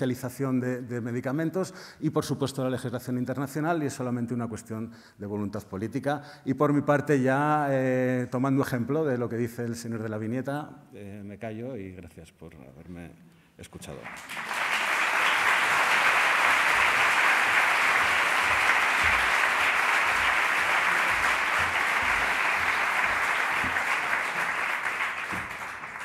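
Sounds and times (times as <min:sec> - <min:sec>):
audience applauding: 0:14.0 - 0:26.0.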